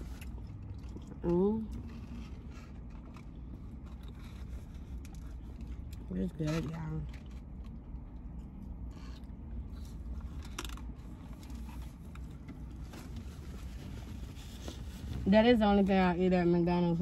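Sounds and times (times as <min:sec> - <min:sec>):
person chewing: 0:00.0 - 0:06.1
low hum in car cabin: 0:00.0 - 0:17.0.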